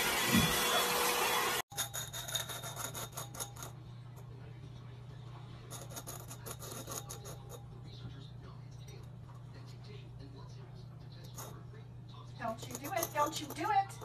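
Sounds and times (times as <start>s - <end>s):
hair dryer blowing: 0.0s - 1.6s
low steady hum: 2.3s - 14.0s.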